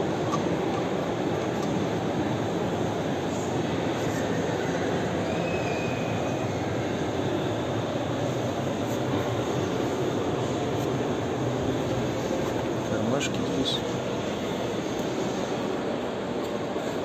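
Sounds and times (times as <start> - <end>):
steady background roar: 0.0 - 17.0
faint whistle: 5.2 - 7.0.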